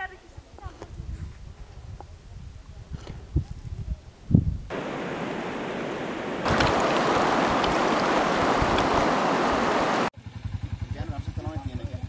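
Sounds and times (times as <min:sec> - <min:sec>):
river rushing over stones: 0:04.7 - 0:10.1
soft steady hiss: 0:04.7 - 0:10.1.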